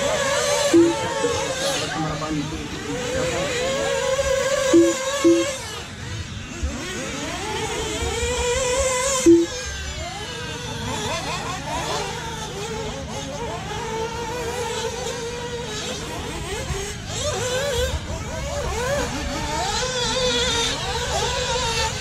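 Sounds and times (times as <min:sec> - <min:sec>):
radio-controlled buggy motors: 0:00.0 - 0:22.0
short electronic beeps: 0:00.7 - 0:01.1, 0:04.6 - 0:05.7, 0:09.2 - 0:09.6.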